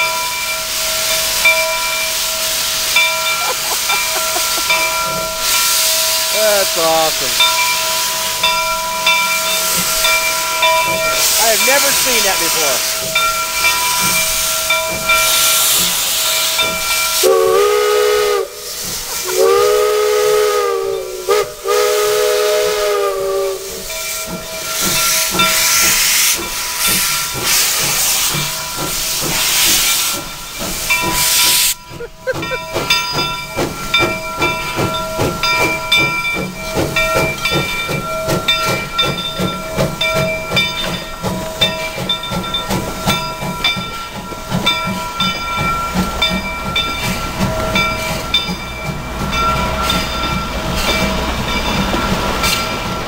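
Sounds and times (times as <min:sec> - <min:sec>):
steam chime whistle blasts: 0:00.0 - 0:32.0
steam locomotive hissing steam: 0:00.0 - 0:53.0
train rolling rhythmic beat: 0:00.0 - 0:53.0.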